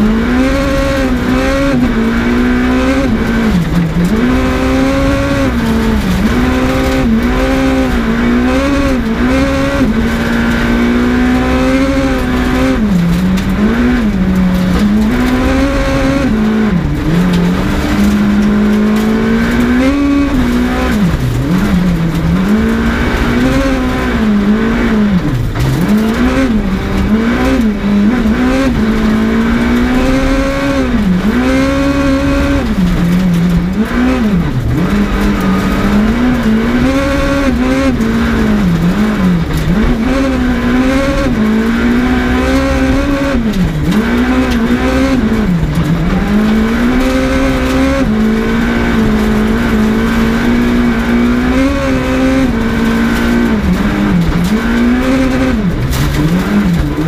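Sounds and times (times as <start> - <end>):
rally car engine revving: 0.0 - 57.0
tyres rumbling on gravel: 0.0 - 57.0.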